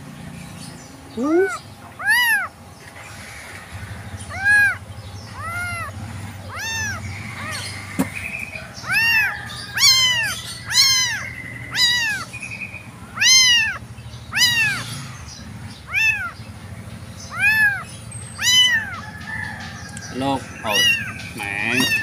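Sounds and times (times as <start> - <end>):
kitten meowing: 1.2 - 2.5, 4.3 - 7.6, 8.8 - 12.3, 13.2 - 15.0, 15.8 - 16.4, 17.3 - 19.0, 20.4 - 22.0.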